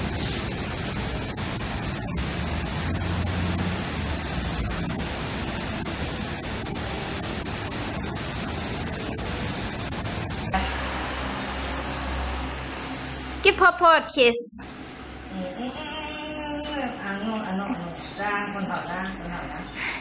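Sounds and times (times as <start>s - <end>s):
steady hiss: 0.0s - 13.4s
low hum: 0.0s - 14.0s.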